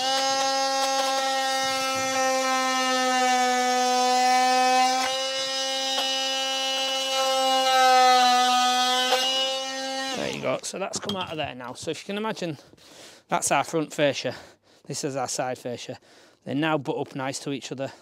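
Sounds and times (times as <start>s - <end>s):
oscillating multi-tool buzzing: 0.0s - 10.6s.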